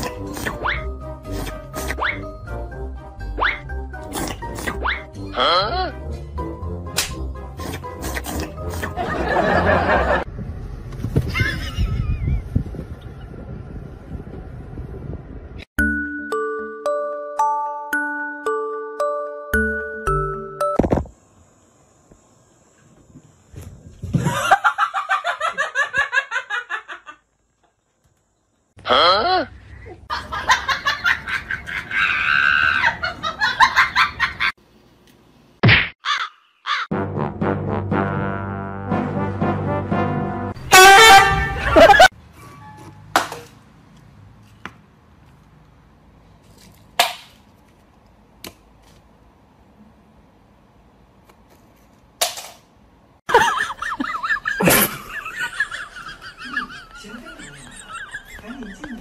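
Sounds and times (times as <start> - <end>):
glockenspiel-like music tune: 15.8 - 20.9
person laughing hard: 24.2 - 27.2, 41.4 - 42.1, 53.3 - 59.0.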